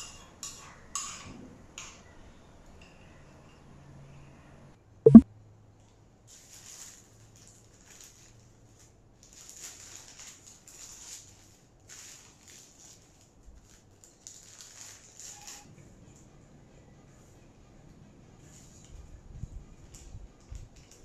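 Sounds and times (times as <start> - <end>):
paper wrapper crinkling: 9.3 - 15.4.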